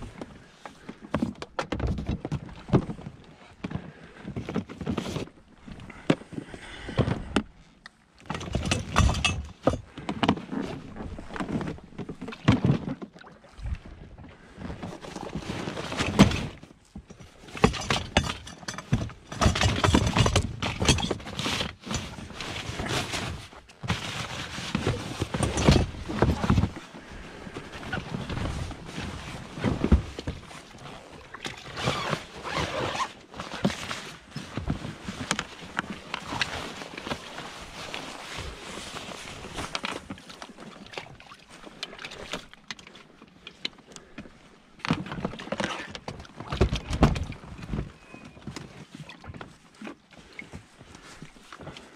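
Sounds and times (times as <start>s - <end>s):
fabric bag rustling and dragging: 21.8s - 40.2s.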